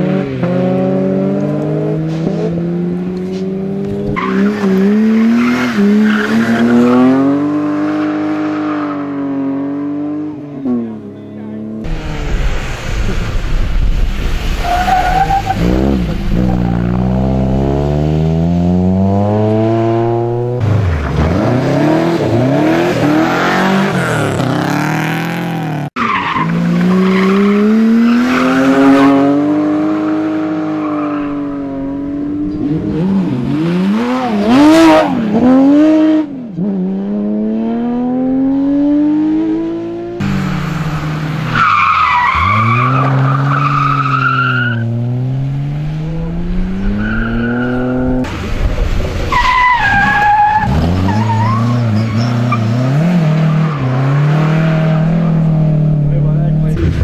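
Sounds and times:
rally car engines revving: 0.0s - 57.0s
tyres skidding on gravel: 40.2s - 45.0s, 46.8s - 55.4s.

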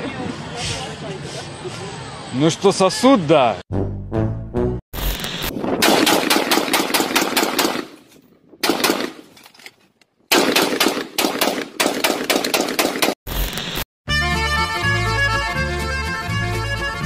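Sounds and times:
rifle firing rapid shots: 5.8s - 8.0s, 8.6s - 9.3s, 10.3s - 13.2s.

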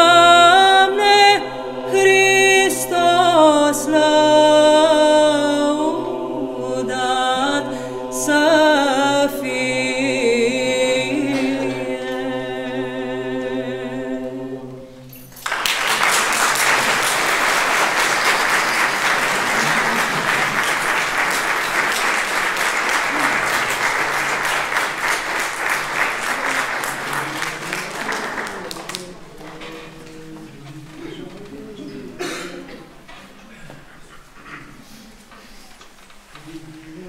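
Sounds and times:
a cappella choir singing: 0.0s - 15.2s
audience applauding: 15.3s - 30.1s.

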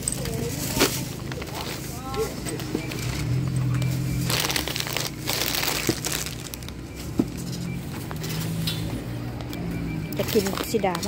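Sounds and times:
plastic bags crinkling: 0.0s - 6.9s, 10.2s - 11.0s.

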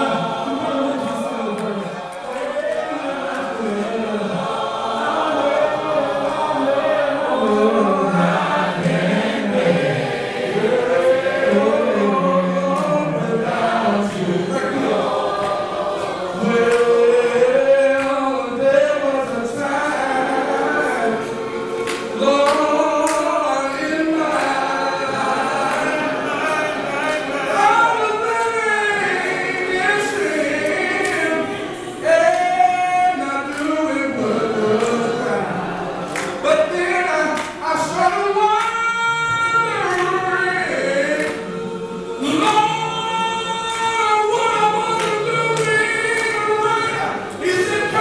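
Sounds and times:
men singing gospel song: 0.0s - 48.0s.

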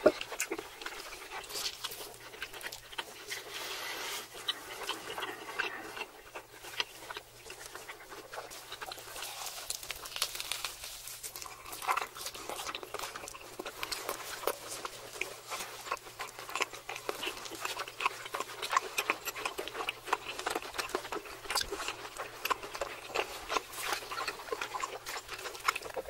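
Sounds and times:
wet chewing and lip smacking: 0.0s - 26.0s
breaths: 3.5s - 4.3s.

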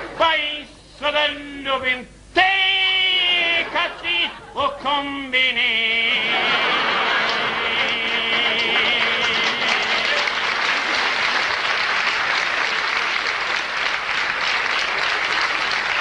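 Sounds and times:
audience applauding: 6.3s - 16.0s.

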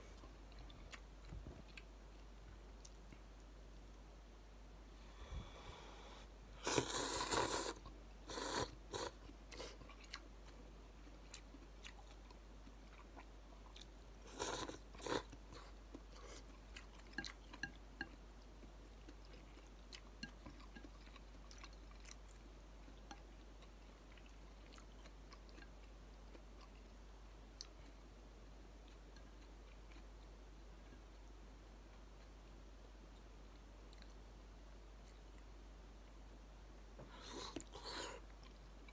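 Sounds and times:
person slurping noodles: 6.6s - 9.1s
person chewing: 6.6s - 27.0s, 28.8s - 30.4s.

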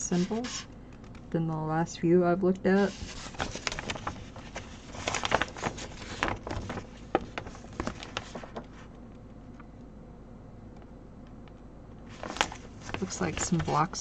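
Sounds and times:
paper sheet rustling: 2.8s - 9.0s, 12.1s - 14.0s.

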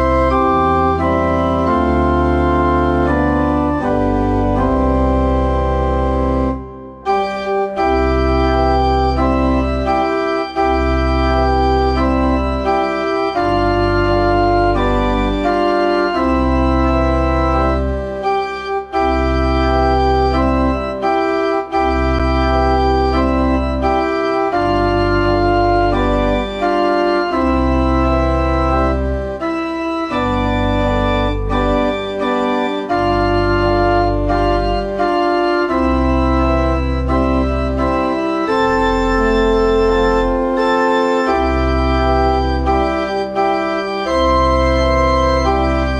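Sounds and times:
deep organ bass line: 0.0s - 45.9s
organ chords: 0.0s - 45.9s.

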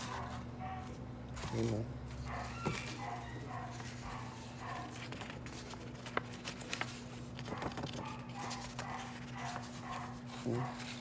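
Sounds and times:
paper rustling and crinkling: 0.0s - 11.0s
dog whimpering and yipping: 2.3s - 4.8s.

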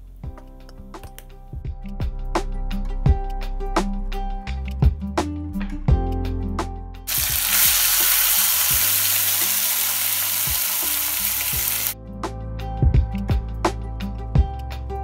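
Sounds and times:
meat sizzling in hot oil: 7.1s - 12.0s.

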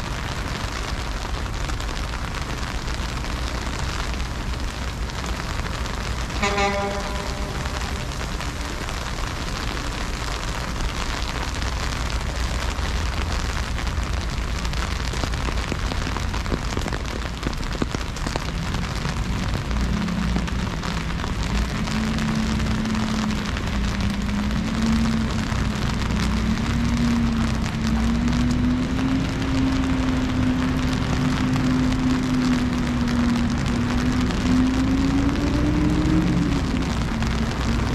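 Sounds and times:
heavy freezing rain hiss: 0.0s - 37.9s
low hum rising in pitch: 6.6s - 9.1s.

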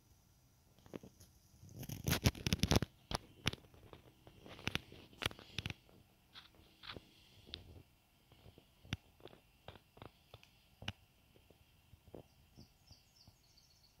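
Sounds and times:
wood fire crackling: 0.8s - 12.2s
bird twittering: 12.2s - 14.0s.

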